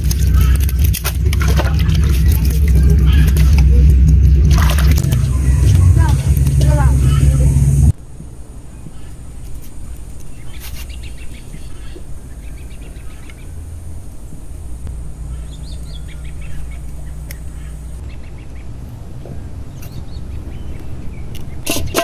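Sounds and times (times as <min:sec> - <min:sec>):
ducks quacking: 0:00.0 - 0:07.9, 0:10.4 - 0:13.7, 0:14.9 - 0:22.0
steady low rumble: 0:00.0 - 0:21.7.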